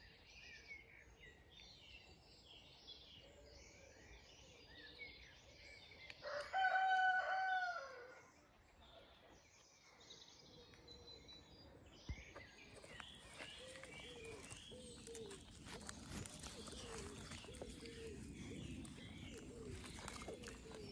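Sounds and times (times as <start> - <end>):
faint songbird chirps: 0.0 - 20.9
rooster crowing: 6.2 - 8.2.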